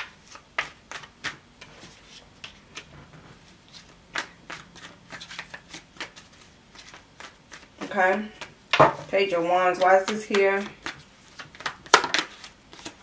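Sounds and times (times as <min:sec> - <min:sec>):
cards being shuffled: 0:00.0 - 0:08.6, 0:09.6 - 0:13.0.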